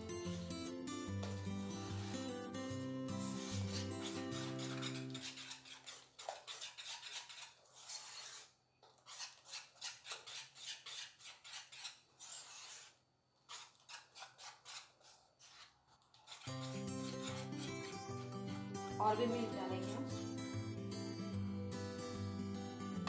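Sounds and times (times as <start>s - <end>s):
background music: 0.0s - 5.3s, 16.5s - 23.0s
spoon stirring batter in metal bowl: 1.2s - 20.2s.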